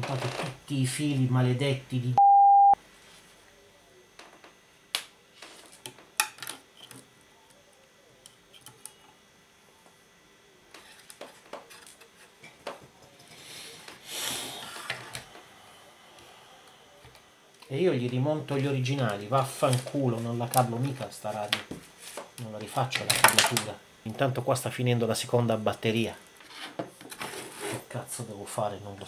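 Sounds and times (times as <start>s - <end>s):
censor bleep: 2.2s - 2.8s.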